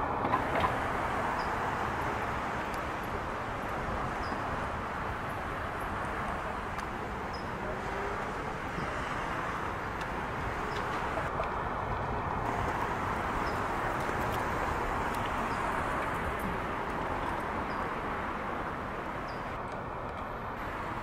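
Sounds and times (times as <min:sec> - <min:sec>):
distant city traffic hum: 0:00.0 - 0:21.0.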